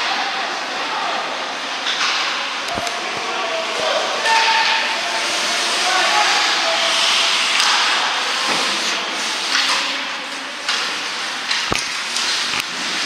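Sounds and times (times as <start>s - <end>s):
skates scraping ice: 5.1s - 13.0s
hockey sticks and puck clacking: 6.3s - 10.1s, 10.7s - 13.0s.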